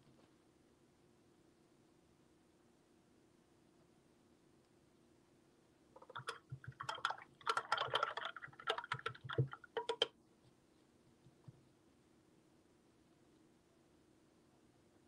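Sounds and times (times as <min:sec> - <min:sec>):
small objects clicking and rattling: 0:06.0 - 0:10.1.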